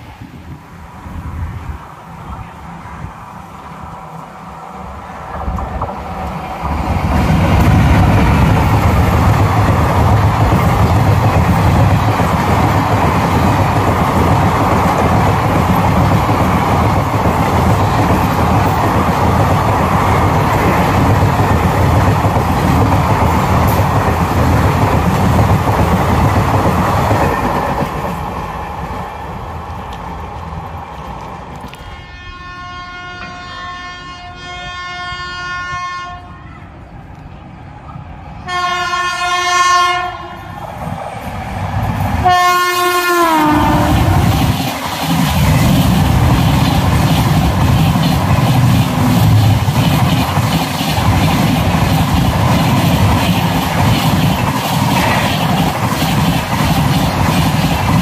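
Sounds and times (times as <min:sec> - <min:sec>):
train passing at high speed: 0:00.0 - 0:58.0
wheels clattering over rails: 0:43.8 - 0:58.0.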